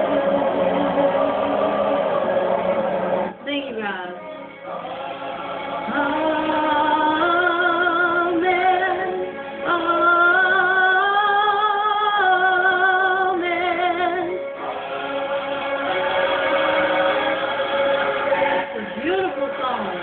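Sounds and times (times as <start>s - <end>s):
backing music: 0.0s - 20.0s
woman singing gospel song: 5.9s - 14.4s.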